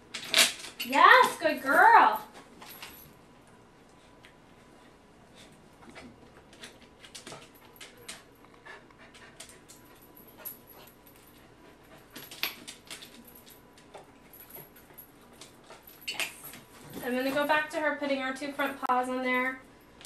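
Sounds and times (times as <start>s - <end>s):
dog panting: 8.5s - 12.3s.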